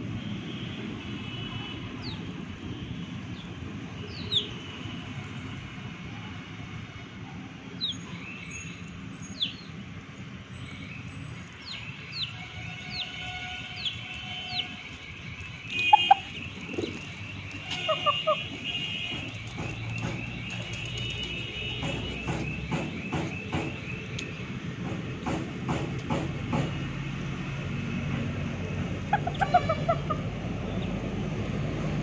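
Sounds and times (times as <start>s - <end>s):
chicken calls: 15.7s - 20.7s, 29.1s - 30.3s.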